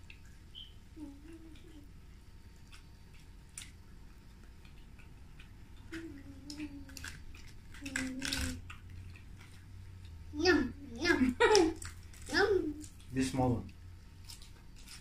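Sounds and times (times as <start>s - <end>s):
lip smacks and wet chewing: 0.0s - 10.3s.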